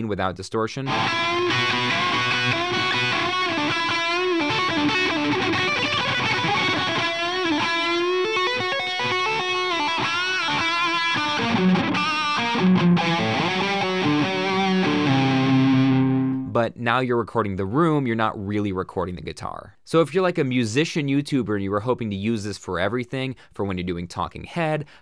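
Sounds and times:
electric guitar lead: 0.9s - 16.5s.

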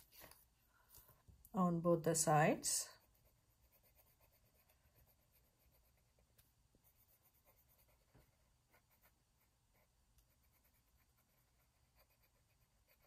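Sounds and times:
pencil scratching on paper: 2.8s - 13.0s.

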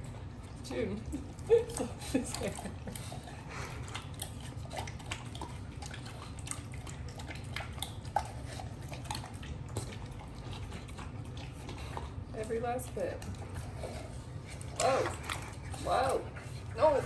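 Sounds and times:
puppy licking and chewing: 0.0s - 17.0s.

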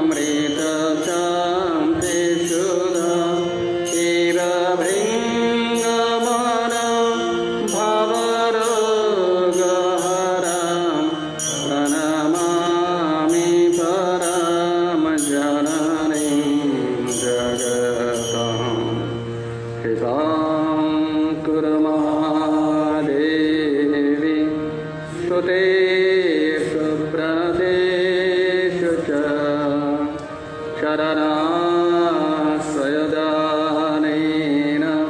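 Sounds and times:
held steady tones: 0.0s - 21.3s
high metallic strikes: 0.1s - 19.9s.

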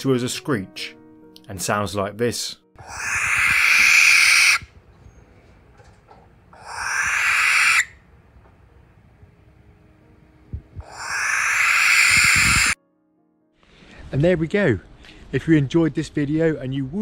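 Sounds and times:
barn owl screeching: 2.8s - 4.8s, 6.5s - 8.0s, 10.8s - 12.8s.

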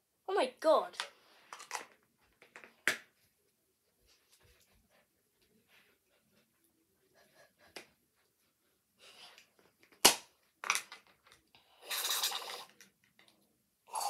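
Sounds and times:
plastic bottle shaken: 11.8s - 12.8s.

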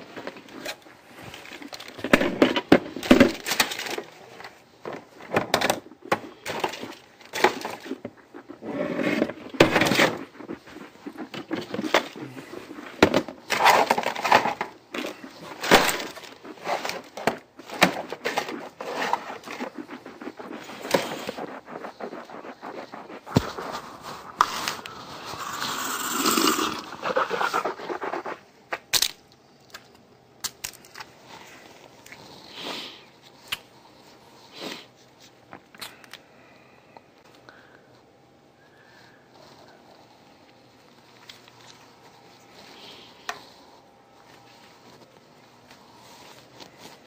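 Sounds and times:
knocks and scrapes: 5.5s - 29.1s.

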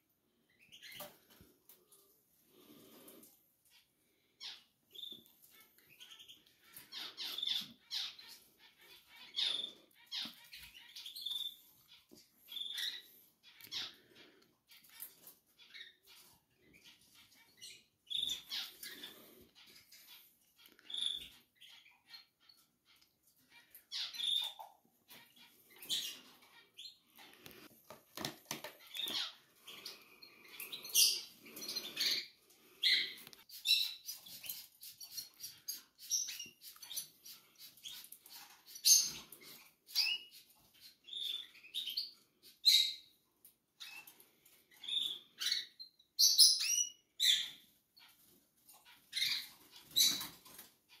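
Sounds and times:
rustling and small knocks: 27.4s - 29.3s
nestlings peeping: 28.6s - 43.1s.

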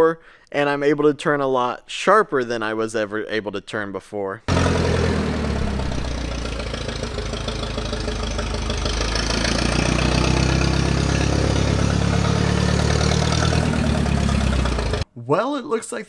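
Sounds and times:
forklift engine running: 4.5s - 15.0s.

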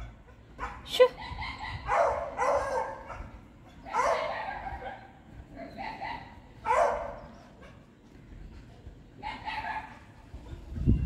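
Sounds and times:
dog barking: 0.6s - 7.8s, 9.2s - 10.1s.

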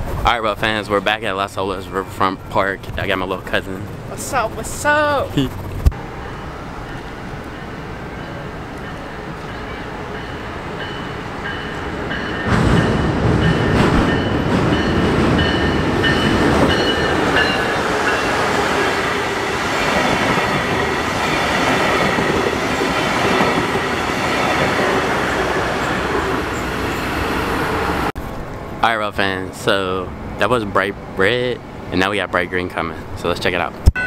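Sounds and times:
passenger train passing: 0.0s - 33.7s
crossing warning bell dinging: 6.0s - 28.1s.

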